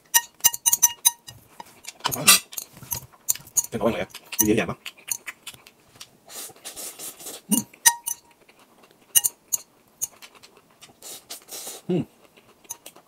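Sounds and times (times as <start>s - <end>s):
chopsticks clinking on glass bowl: 0.2s - 3.8s, 7.5s - 8.3s, 9.2s - 10.2s.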